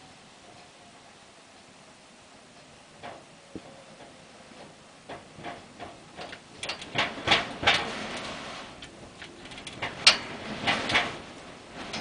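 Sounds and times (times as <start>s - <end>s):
hurricane wind: 0.0s - 12.0s
loose siding banging in wind: 2.8s - 12.0s.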